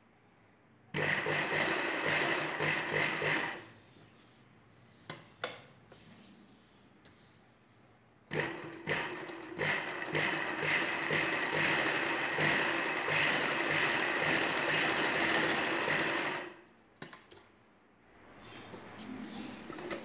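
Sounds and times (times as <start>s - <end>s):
sewing machine stitching: 1.0s - 3.6s, 8.3s - 16.6s.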